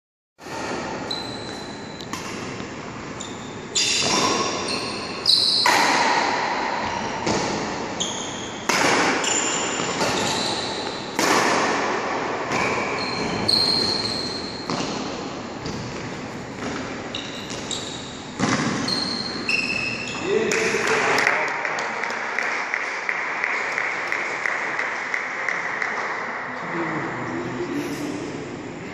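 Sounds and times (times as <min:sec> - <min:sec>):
racket hitting shuttlecock: 0:00.4 - 0:02.8, 0:04.0 - 0:04.8, 0:05.5 - 0:07.9, 0:08.6 - 0:13.0, 0:13.7 - 0:17.7, 0:18.4 - 0:18.9
shoe squeaks: 0:01.0 - 0:02.2, 0:03.1 - 0:05.8, 0:07.9 - 0:11.1, 0:12.5 - 0:14.8, 0:17.0 - 0:20.5.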